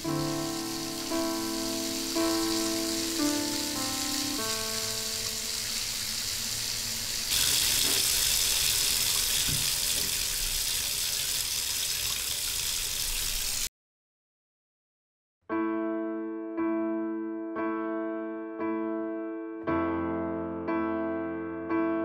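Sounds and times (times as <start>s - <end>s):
steady hiss: 0.0s - 9.7s
running water rushing: 0.0s - 13.7s.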